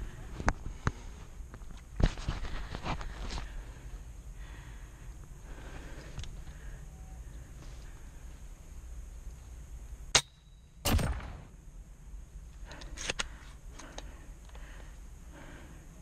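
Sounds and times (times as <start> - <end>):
airsoft rifle shot: 10.1 - 11.5.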